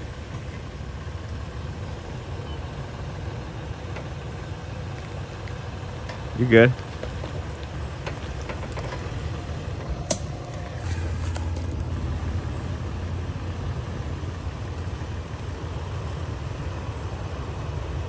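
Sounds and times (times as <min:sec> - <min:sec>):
truck engine running at low revs: 0:00.0 - 0:18.0.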